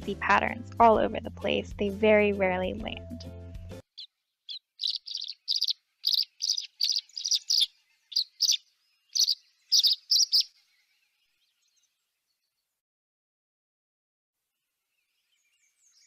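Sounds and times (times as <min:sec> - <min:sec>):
swallows chirping: 0:03.9 - 0:12.0.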